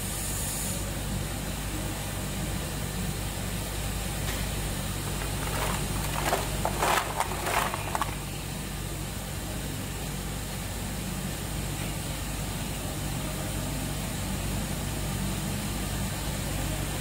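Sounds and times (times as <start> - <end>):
low machine hum: 4.0 - 9.0
ice clinking against glass bottles: 5.0 - 8.4.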